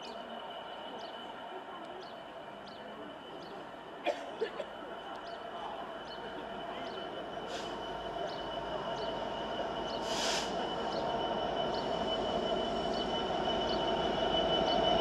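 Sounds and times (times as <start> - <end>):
diesel locomotive engine hum: 0.0 - 15.0
birds chirping: 5.0 - 15.0.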